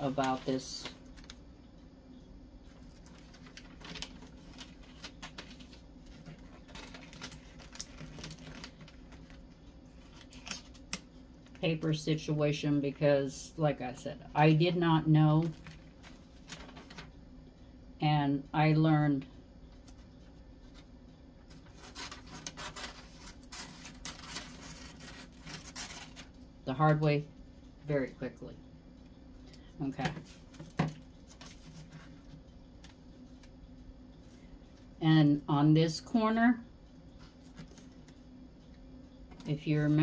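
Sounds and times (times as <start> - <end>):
wrapping paper crinkling: 2.8 - 11.6, 21.6 - 26.4
scissors cutting paper: 21.7 - 26.3.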